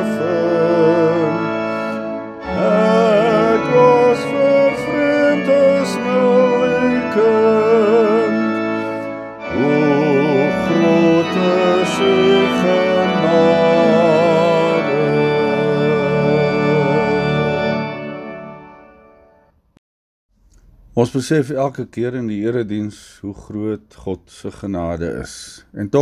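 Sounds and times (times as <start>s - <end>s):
church organ playing hymn: 0.0s - 19.5s.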